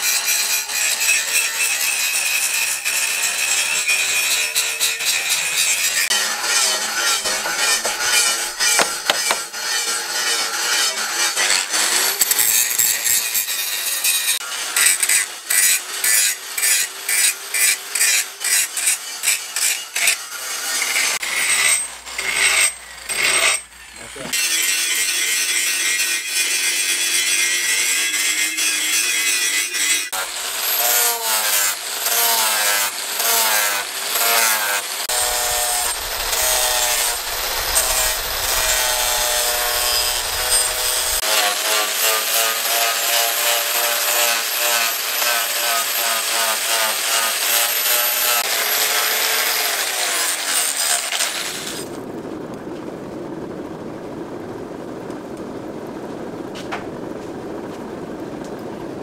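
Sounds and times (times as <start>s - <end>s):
angle grinder grinding steel: 0.0s - 51.9s
forge fire rushing: 35.1s - 41.2s, 51.6s - 59.0s.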